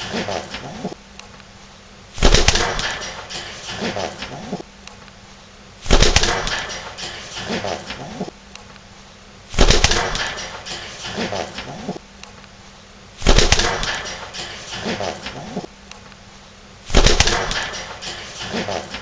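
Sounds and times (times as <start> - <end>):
pigeon cooing: 0.0 - 1.0, 3.0 - 4.7, 7.4 - 8.4, 11.0 - 12.0, 14.0 - 15.7
loud rustling burst: 2.2 - 4.6, 5.8 - 8.1, 9.5 - 12.0, 13.2 - 15.7, 16.9 - 19.0.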